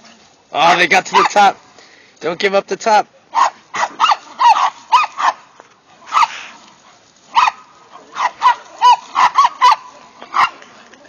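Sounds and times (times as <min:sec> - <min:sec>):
small dogs yapping: 0:00.6 - 0:01.4, 0:03.3 - 0:06.7, 0:07.3 - 0:10.6.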